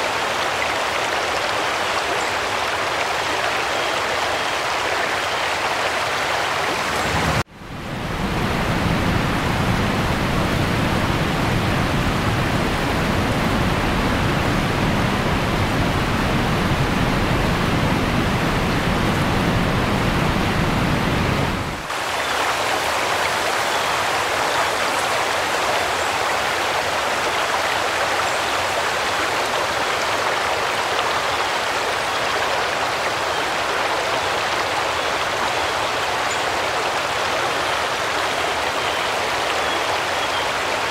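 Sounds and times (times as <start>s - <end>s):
floodwater flowing: 0.0s - 40.9s
heavy rain: 0.0s - 40.9s.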